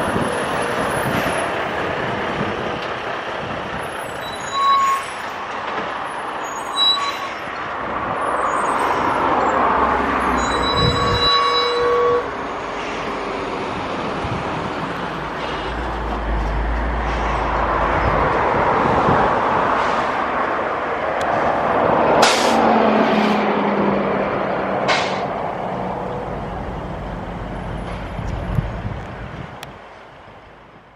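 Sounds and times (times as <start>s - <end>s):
engine hum: 0.0s - 4.2s, 11.8s - 30.9s.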